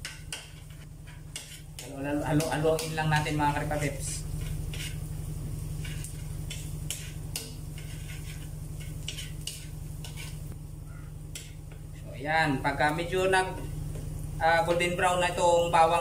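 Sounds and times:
metal spatula scraping a wok: 0:00.0 - 0:10.6
faint sizzle: 0:00.0 - 0:16.0
steady low hum: 0:00.0 - 0:16.0.

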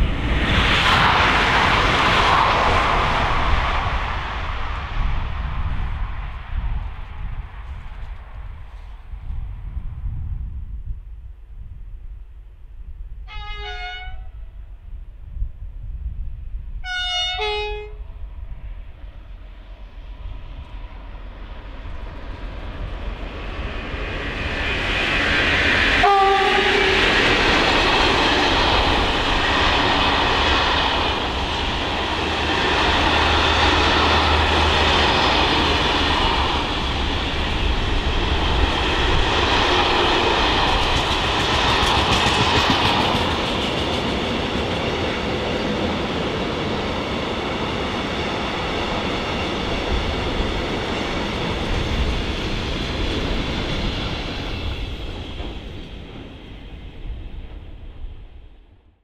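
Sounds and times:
freight train rumble and clatter: 0:00.0 - 0:59.0
train horn toot: 0:13.3 - 0:14.6, 0:16.8 - 0:18.1, 0:26.0 - 0:27.2.

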